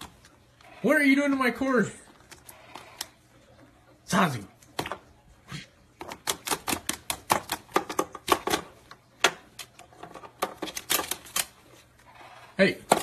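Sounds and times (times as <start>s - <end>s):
parrot tapping on plastic: 6.0s - 11.4s.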